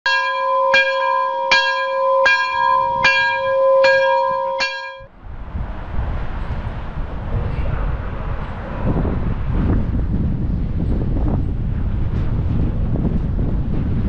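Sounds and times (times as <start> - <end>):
level crossing warning bell: 0.1 - 5.1
wind noise: 0.1 - 14.0
low rumble: 1.5 - 14.0.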